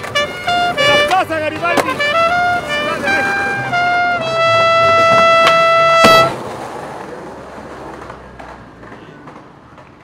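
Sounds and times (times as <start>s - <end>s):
soundtrack music with brass note: 1.8s - 6.4s.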